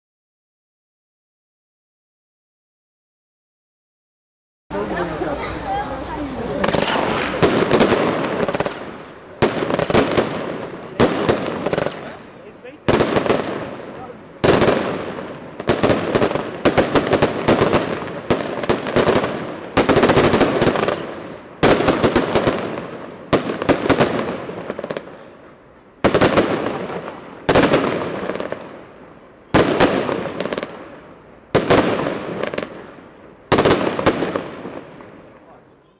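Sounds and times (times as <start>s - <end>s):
rolling echo of gunfire: 6.6s - 12.3s, 12.9s - 25.4s, 26.0s - 35.6s.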